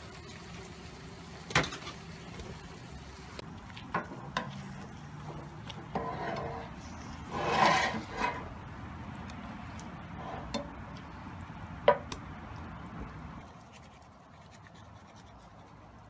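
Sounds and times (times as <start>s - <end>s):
spatula scraping frying pan: 4.0s - 8.6s, 10.2s - 10.7s.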